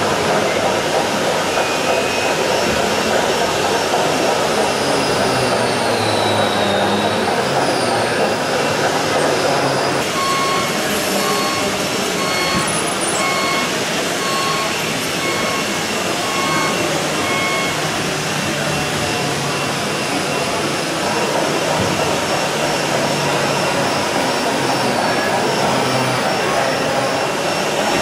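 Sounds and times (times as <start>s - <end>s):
rushing hall noise: 0.0s - 28.0s
electronic warning beep: 10.0s - 17.9s.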